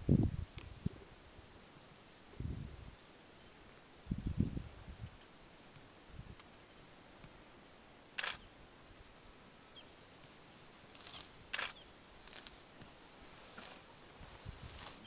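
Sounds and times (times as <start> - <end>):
rhinoceros cropping dry grass: 10.8 - 15.0.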